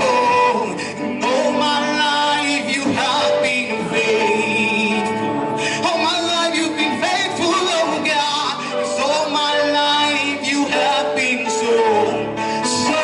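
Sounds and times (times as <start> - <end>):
electronic keyboard: 0.0 - 13.0
man singing gospel: 0.0 - 13.0.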